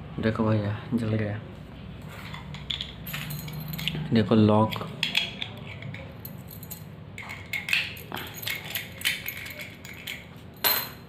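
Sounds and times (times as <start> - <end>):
padlock and keys clinking: 2.6 - 4.0, 4.7 - 11.0.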